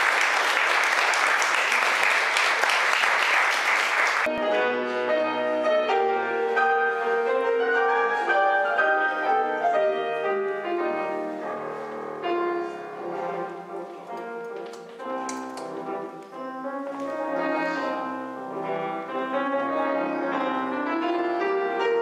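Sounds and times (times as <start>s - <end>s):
audience applauding: 0.0s - 4.3s
solo piano melody: 4.2s - 22.0s.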